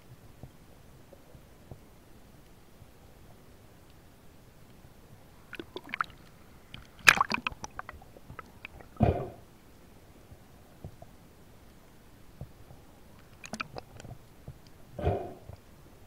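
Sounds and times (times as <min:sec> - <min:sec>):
water sloshing: 0:05.4 - 0:09.4, 0:13.2 - 0:14.2.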